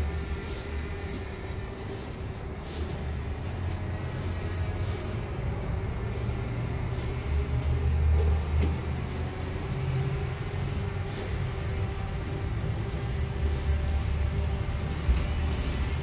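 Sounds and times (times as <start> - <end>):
drone buzzing overhead: 0.0 - 16.0.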